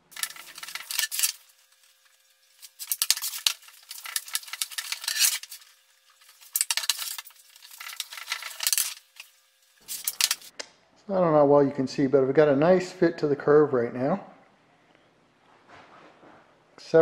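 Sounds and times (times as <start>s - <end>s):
metal tube scraping on wooden sticks: 0.0s - 10.5s.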